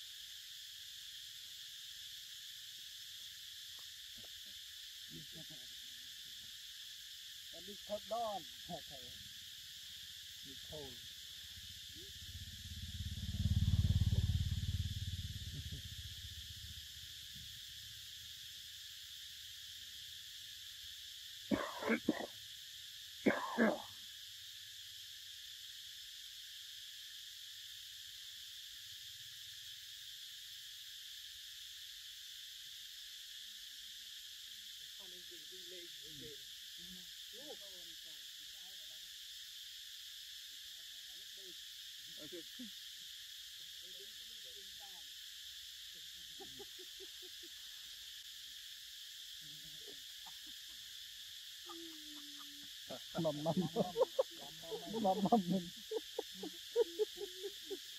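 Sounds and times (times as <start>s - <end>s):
insects droning: 0.0s - 57.9s
man's voice: 53.0s - 53.8s.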